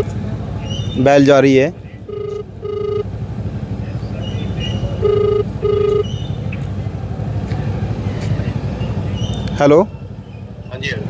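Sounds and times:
phone ringback tone: 2.1s - 3.1s, 5.0s - 6.1s.

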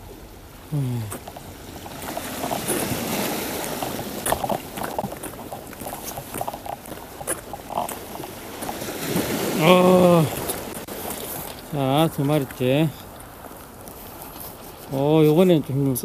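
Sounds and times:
clicks and rustling handling fish: 0.7s - 16.0s
steady background hiss: 6.6s - 16.0s.

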